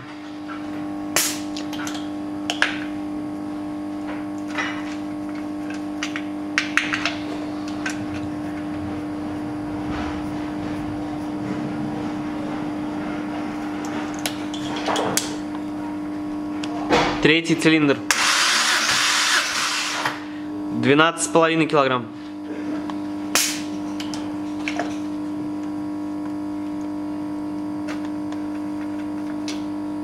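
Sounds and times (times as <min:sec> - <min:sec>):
steady electrical hum: 0:00.0 - 0:30.0.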